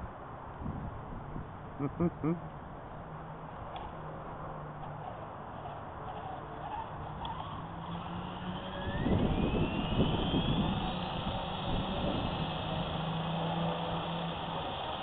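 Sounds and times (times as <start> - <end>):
electric motor whine: 3.7 - 15.0.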